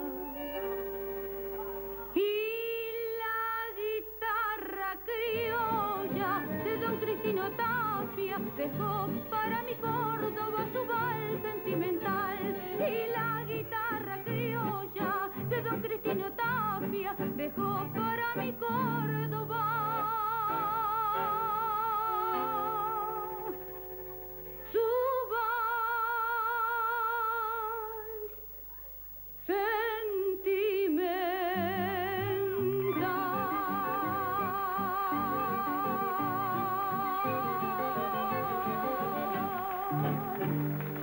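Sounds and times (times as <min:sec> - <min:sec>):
tango band playing: 0:00.0 - 0:02.2, 0:05.3 - 0:24.8, 0:31.7 - 0:41.0
woman singing with vibrato: 0:00.0 - 0:28.8, 0:29.4 - 0:41.0.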